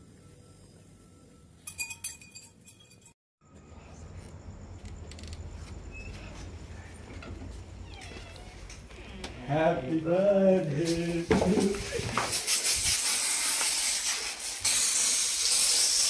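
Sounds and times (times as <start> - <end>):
metallic clinks and jingles: 1.6 - 3.2.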